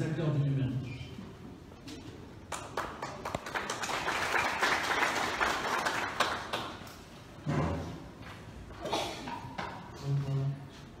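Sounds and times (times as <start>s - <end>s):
audience clapping in a hall: 2.4s - 7.1s.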